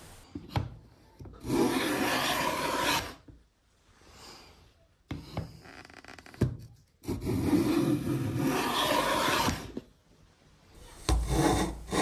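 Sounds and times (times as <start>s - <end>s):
plane rasping along wood: 1.4s - 3.2s, 7.1s - 9.8s, 11.0s - 12.0s.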